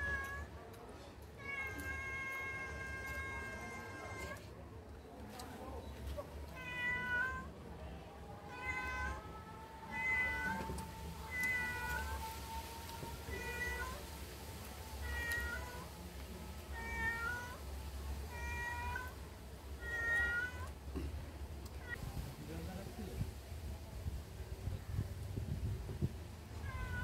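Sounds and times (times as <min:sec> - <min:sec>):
cat meowing: 0:00.0 - 0:00.5, 0:01.4 - 0:04.4, 0:06.5 - 0:07.5, 0:08.4 - 0:12.3, 0:13.2 - 0:14.0, 0:15.0 - 0:15.9, 0:16.7 - 0:17.6, 0:18.3 - 0:19.2, 0:19.8 - 0:20.7, 0:26.6 - 0:27.0.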